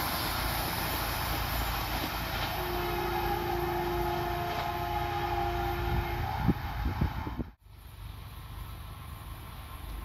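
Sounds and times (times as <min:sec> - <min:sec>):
train running rumble and hiss: 0:00.0 - 0:10.0
train horn blast: 0:02.4 - 0:07.6.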